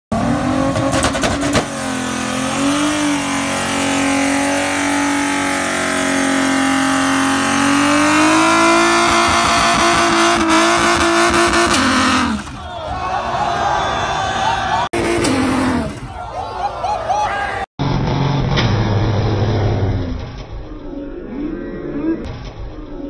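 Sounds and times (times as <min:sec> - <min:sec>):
car engine revving high: 0:00.1 - 0:12.4.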